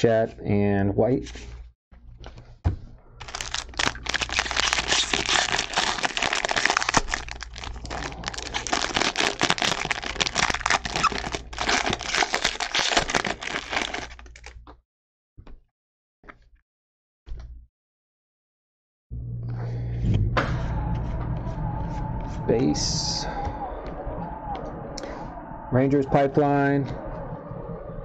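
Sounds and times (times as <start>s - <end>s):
foil wrapper tearing and crinkling: 3.2s - 14.6s.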